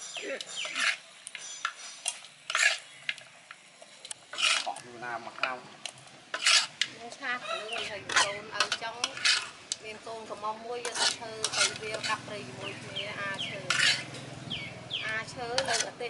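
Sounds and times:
chickens clucking: 7.3s - 8.8s
metal utensils clattering on cookware: 7.7s - 9.5s, 10.8s - 12.3s, 13.3s - 14.3s, 15.4s - 16.0s.

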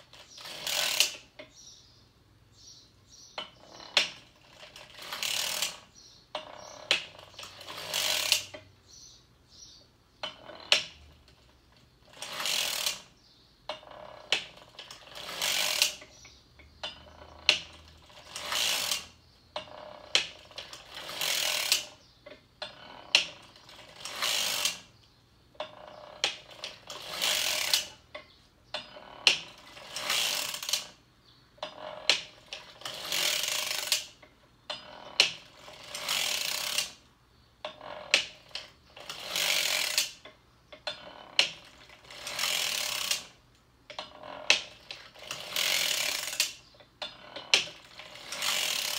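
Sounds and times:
sock knitting machine clattering: 3.4s - 8.7s, 10.2s - 24.9s, 25.6s - 31.0s, 31.6s - 37.0s, 37.6s - 48.9s.

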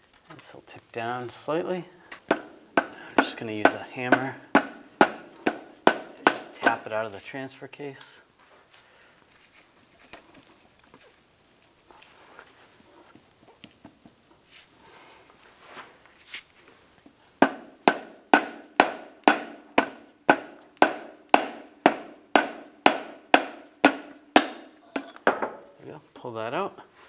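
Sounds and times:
hammer striking metal shaft: 2.3s - 6.8s, 17.4s - 25.6s.

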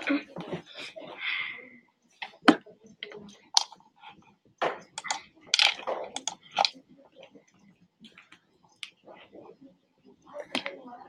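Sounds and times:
irregular clicks and taps: 4.6s - 9.0s.

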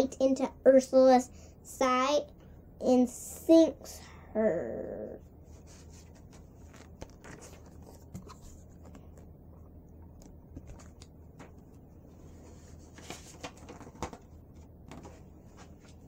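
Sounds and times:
steady low hum: 0.0s - 16.0s
book pages rustling: 5.5s - 16.0s.

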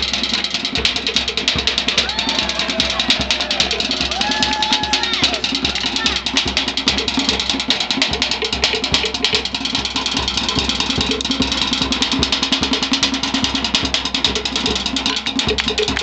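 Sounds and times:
fast hand drumming: 0.0s - 16.0s.

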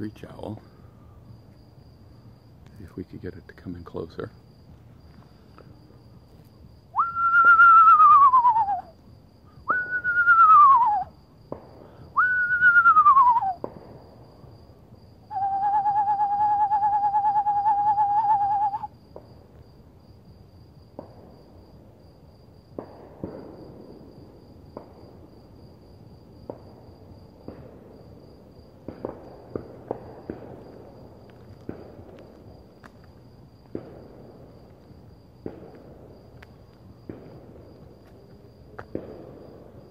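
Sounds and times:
person whistling owl calls: 7.0s - 9.0s, 9.7s - 11.1s, 12.1s - 13.6s, 15.3s - 18.9s.

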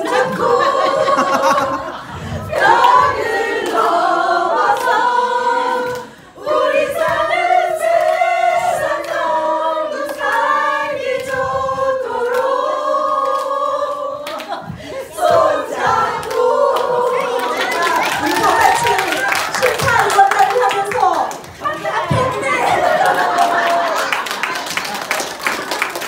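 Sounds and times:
women's group singing a cappella: 0.0s - 24.1s.

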